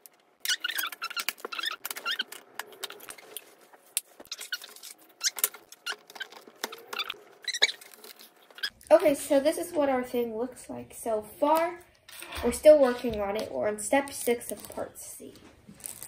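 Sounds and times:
parts squeaking against each other: 0:00.4 - 0:03.0, 0:04.3 - 0:08.8.

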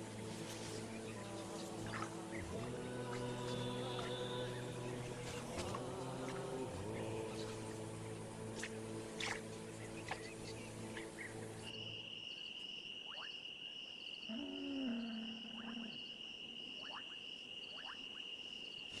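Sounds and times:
music: 0:00.0 - 0:12.0
pulsing insect chorus: 0:00.0 - 0:19.0
low drawn-out animal call: 0:14.3 - 0:16.2.

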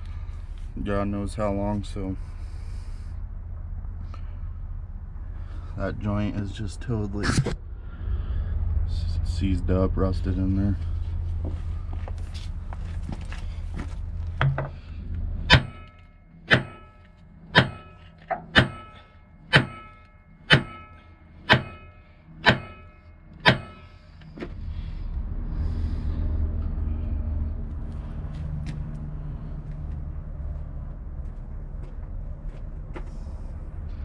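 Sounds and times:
low rumble: 0:00.0 - 0:34.0
hammer striking steel: 0:15.5 - 0:24.0.

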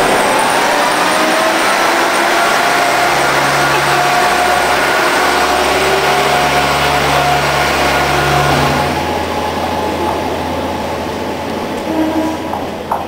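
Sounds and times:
diesel railcar engine running: 0:00.0 - 0:13.0.

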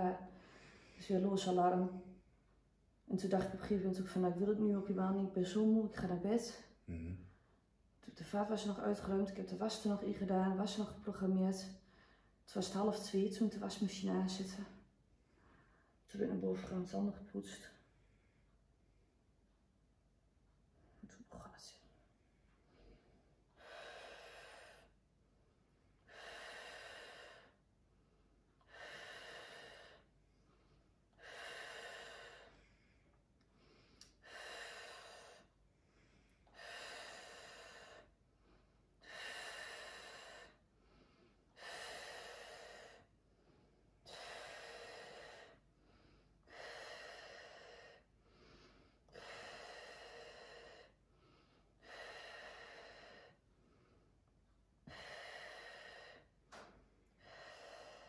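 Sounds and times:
woman breathing slowly and deeply: 0:00.3 - 0:01.2, 0:11.8 - 0:12.4, 0:15.1 - 0:16.1, 0:22.4 - 0:58.0.

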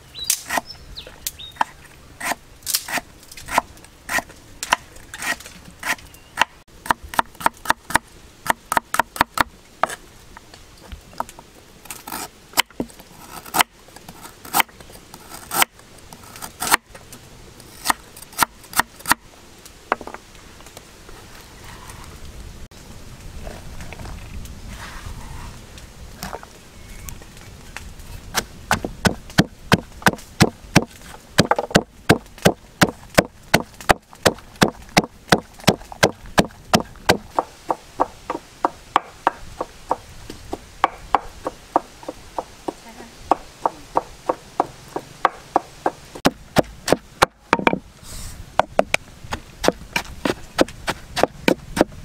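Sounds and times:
pestle pounding in mortar: 0:28.7 - 0:40.0, 0:40.8 - 0:47.8.

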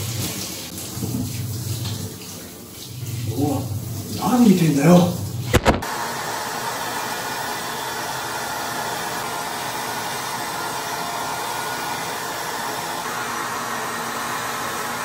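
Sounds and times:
hair dryer blowing: 0:05.5 - 0:15.0.

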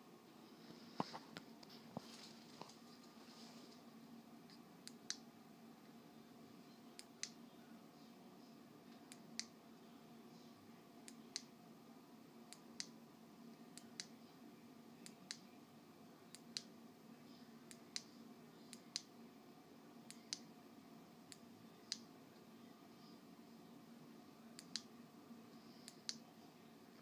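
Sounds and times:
quiet background hum: 0:00.0 - 0:27.0
faint sharp clicks: 0:21.3 - 0:22.1, 0:24.6 - 0:24.9, 0:25.8 - 0:26.2.

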